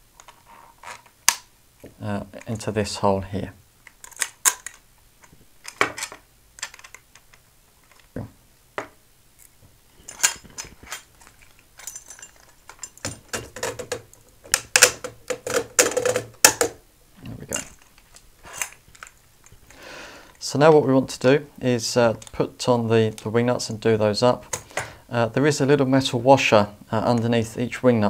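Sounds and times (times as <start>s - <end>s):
metal aerial clicking and knocking: 10.1s - 16.8s.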